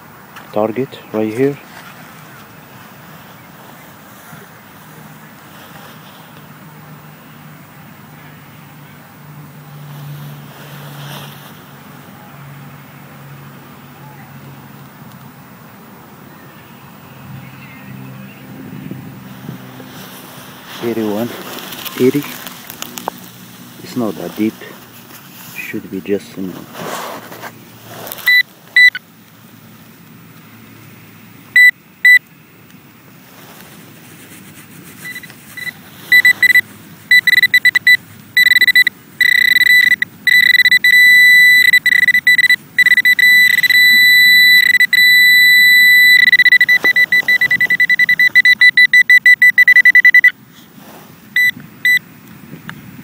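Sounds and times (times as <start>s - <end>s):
metal detector probe beeping: 19.4s - 22.5s, 27.9s - 29.0s, 31.6s - 32.3s, 35.0s - 50.4s, 51.4s - 52.0s.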